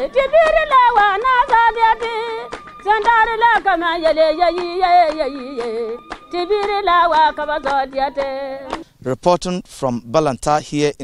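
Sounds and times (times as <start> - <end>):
women singing: 0.0 - 8.8
hands clapping steady beat: 0.3 - 8.8.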